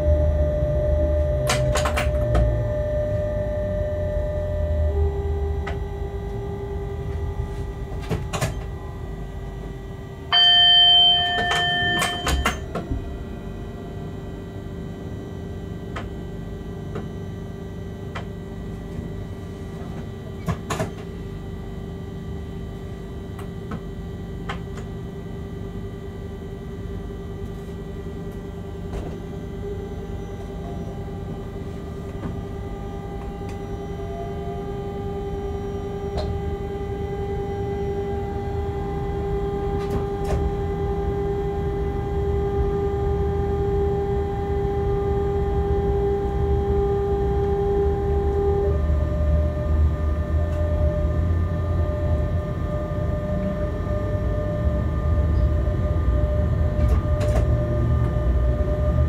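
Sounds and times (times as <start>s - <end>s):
steady electrical hum: 0.0s - 59.0s
loud electronic beep: 10.4s - 12.6s.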